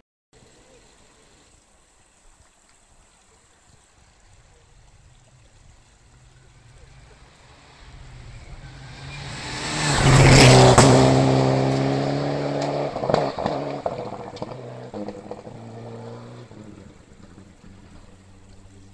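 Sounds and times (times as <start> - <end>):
rally car engine passing: 6.0 - 18.9.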